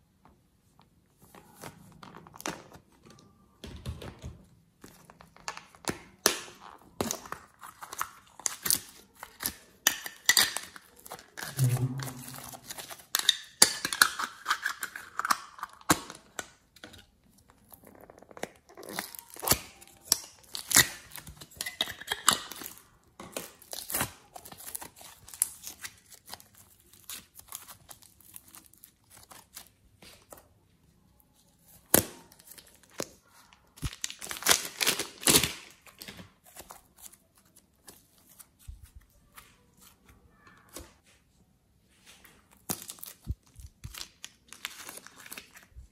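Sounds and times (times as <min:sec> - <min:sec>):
hands kneading clay and slime: 0:16.5 - 0:45.9.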